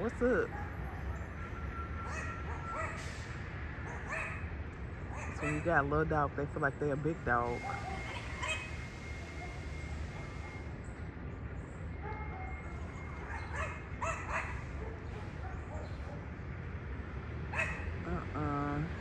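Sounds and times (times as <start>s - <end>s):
dog barking: 3.8s - 4.4s, 7.6s - 8.6s, 13.3s - 16.3s, 17.5s - 17.9s.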